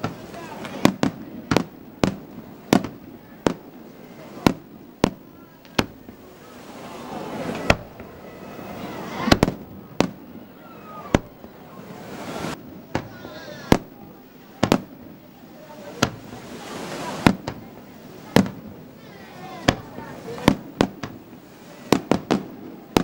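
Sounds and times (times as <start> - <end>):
firework hiss: 0.0 - 23.0
firework shell bursts: 4.4 - 13.9.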